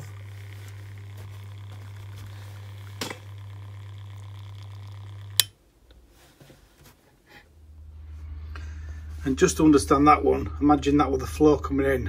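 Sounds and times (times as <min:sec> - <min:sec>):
valve motor humming: 0:00.0 - 0:05.5.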